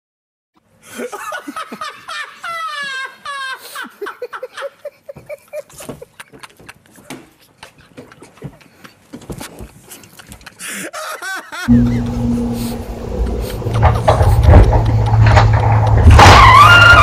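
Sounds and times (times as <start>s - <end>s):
person laughing: 0.8s - 9.1s, 9.9s - 15.2s.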